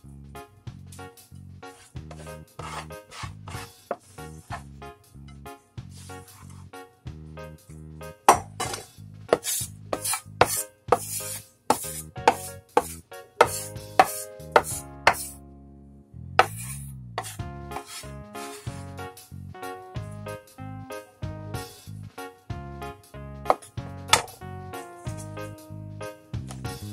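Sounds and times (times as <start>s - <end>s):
background music: 0.0s - 26.9s
cleaver chopping on wooden board: 8.3s - 15.3s, 16.4s - 18.0s, 23.5s - 24.3s.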